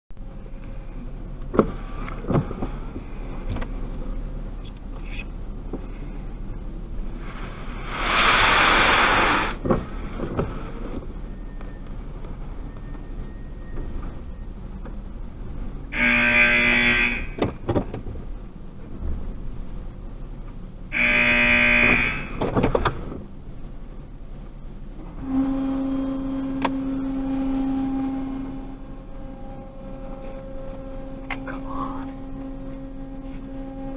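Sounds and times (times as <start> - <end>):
car engine hum: 0.1 - 33.9
loud flat buzzing tones: 7.8 - 9.6, 15.9 - 17.6, 20.9 - 22.6, 25.2 - 33.9.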